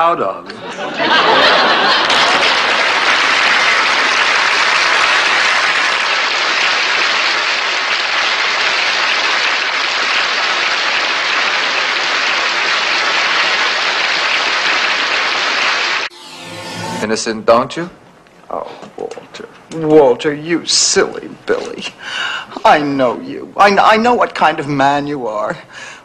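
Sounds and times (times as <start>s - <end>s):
studio audience applause: 1.2s - 16.1s.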